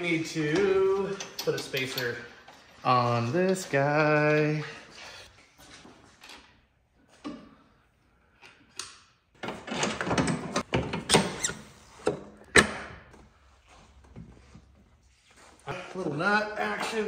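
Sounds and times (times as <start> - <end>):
metal parts clinking and scraping: 0.0 - 4.4.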